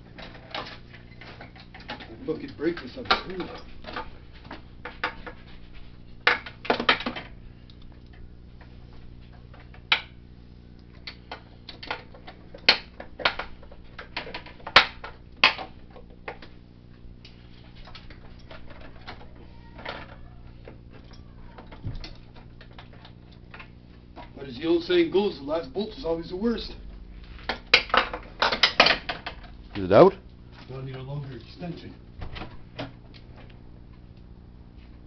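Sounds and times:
low hum: 25.7 - 28.5.

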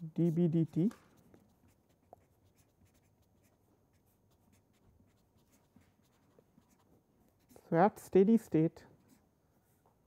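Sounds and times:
marker pen writing on paper: 0.0 - 7.7.

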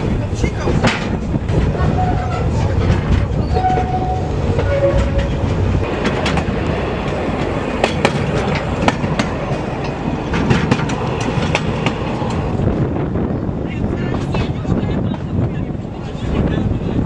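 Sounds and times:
train wheels rumbling on track: 0.0 - 17.0
sharp clicks and knocks: 4.6 - 12.5.

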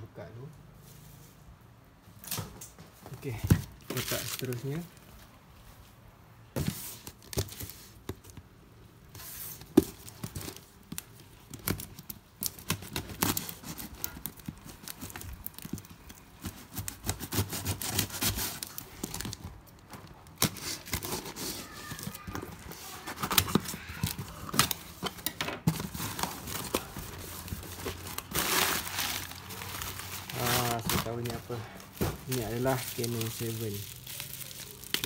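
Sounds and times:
plastic wrapping and tape tearing: 3.2 - 5.1, 9.2 - 35.0.

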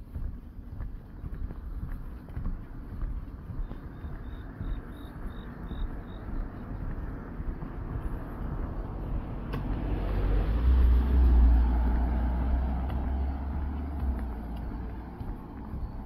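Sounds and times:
vehicle driving past: 5.5 - 16.0.

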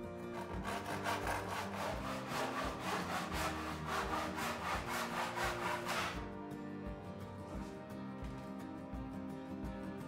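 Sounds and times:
handsaw cutting wood: 0.2 - 6.3.

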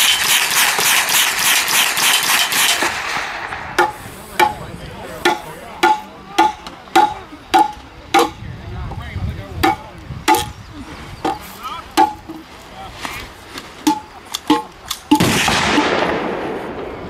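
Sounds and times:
rapid automatic gunfire: 0.0 - 3.7, 15.2 - 16.7
hammer striking wooden ramrod: 3.8 - 8.4, 9.6 - 10.5, 11.2 - 11.4, 12.0 - 12.5, 13.8 - 15.3.

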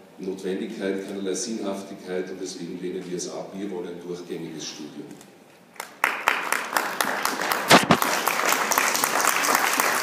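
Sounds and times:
audience applauding: 5.8 - 10.0
loud claps close by: 5.8 - 10.0.

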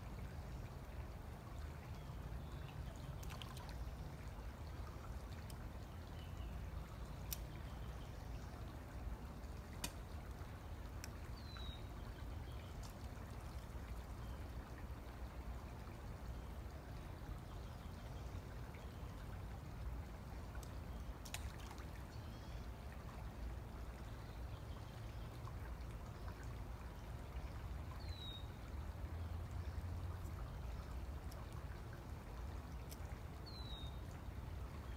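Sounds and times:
faint clicks: 7.0 - 7.7, 9.7 - 10.2.

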